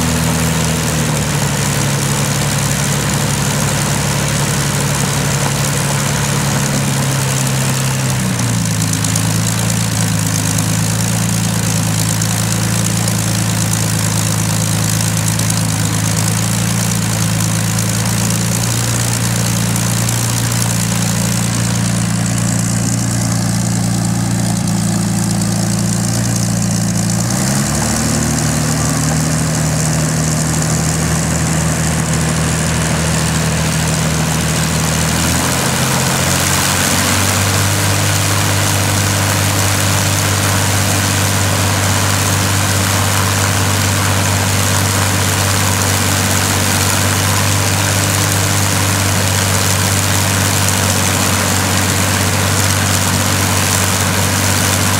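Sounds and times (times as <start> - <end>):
aero engine running: 0.0 - 54.9.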